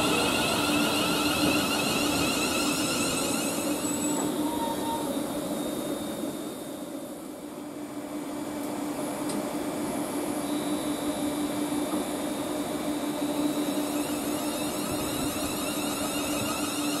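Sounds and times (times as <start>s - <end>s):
faint high whine: 0.0s - 7.9s, 10.3s - 17.0s
electric train hum: 0.0s - 17.0s.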